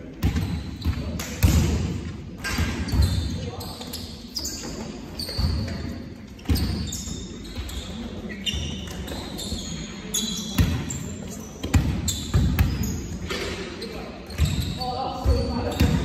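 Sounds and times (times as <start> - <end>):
shoes squeaking on court floor: 0.1 - 1.6, 2.4 - 16.0.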